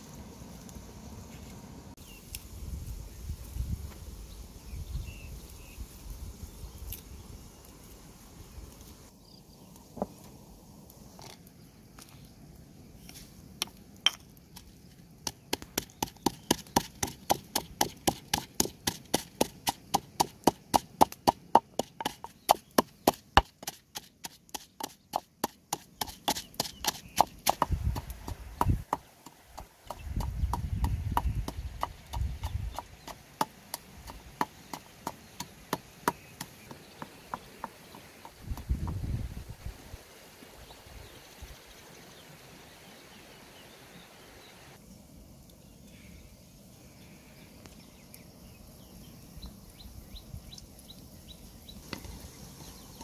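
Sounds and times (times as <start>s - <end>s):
wooden pestle pounding in mortar: 15.2s - 29.1s.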